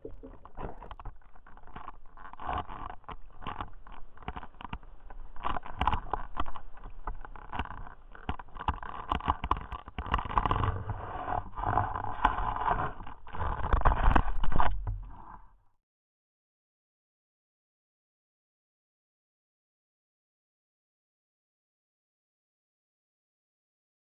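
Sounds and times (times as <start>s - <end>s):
water sloshing and gurgling: 0.0s - 15.6s.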